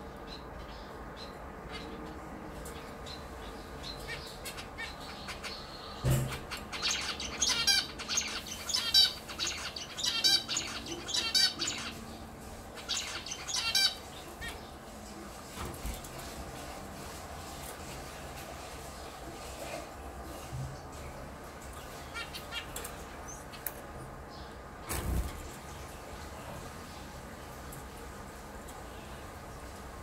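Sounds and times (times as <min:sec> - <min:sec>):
finch singing: 0:00.2 - 0:12.1, 0:12.7 - 0:14.8.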